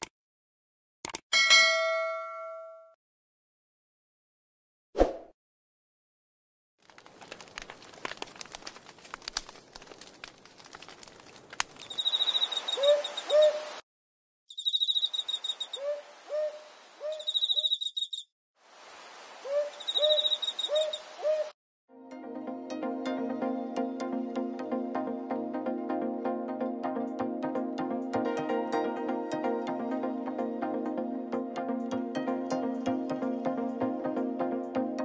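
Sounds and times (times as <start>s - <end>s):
irregular crackling clicks: 6.8s - 12.6s
short hooting bird calls: 11.9s - 13.8s, 14.5s - 18.2s, 19.4s - 21.5s
high-pitched hiss: 18.6s - 21.3s.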